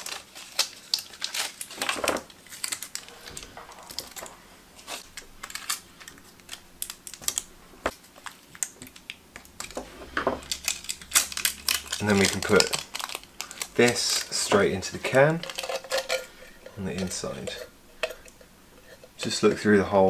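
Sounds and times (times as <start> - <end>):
foil tape crinkling: 0.0 - 9.8, 10.4 - 16.2.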